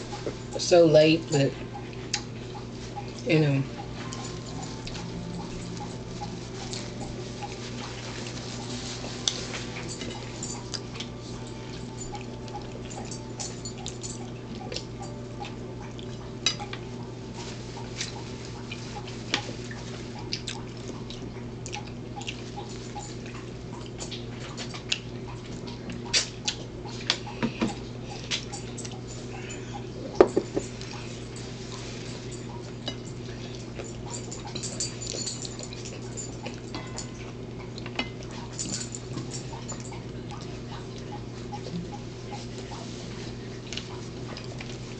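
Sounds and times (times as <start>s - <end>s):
low steady hum: 0.0s - 44.9s
plates and glass clinking: 28.6s - 30.8s
glass knocking on table: 30.2s - 30.6s.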